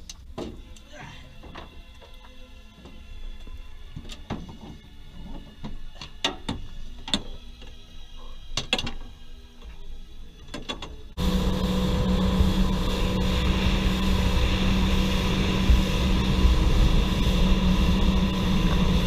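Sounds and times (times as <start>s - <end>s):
boat engine running: 11.2s - 19.0s.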